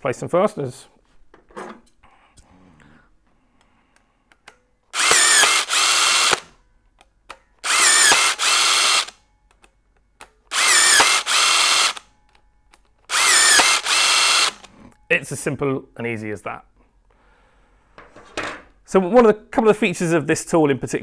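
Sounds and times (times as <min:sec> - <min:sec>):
fastening tool motor running: 0:04.9 - 0:06.5, 0:07.6 - 0:09.2, 0:10.5 - 0:12.0, 0:13.1 - 0:14.7.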